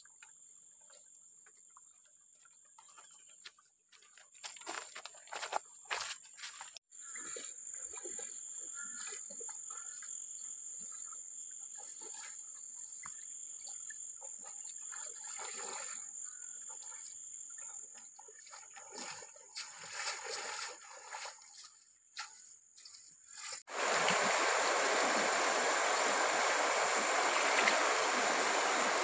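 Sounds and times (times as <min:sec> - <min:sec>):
water splashing under wading feet: 0:13.7 - 0:29.0
insects buzzing: 0:23.7 - 0:29.0.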